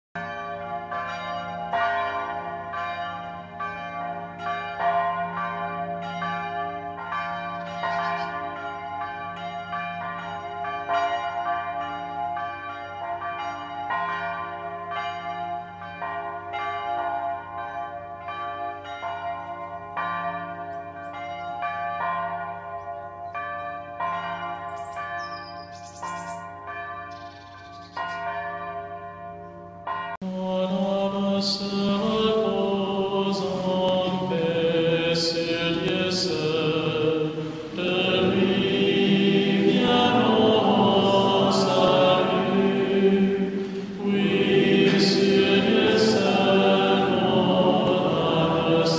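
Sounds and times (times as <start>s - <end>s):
church bells pealing: 0.2s - 48.9s.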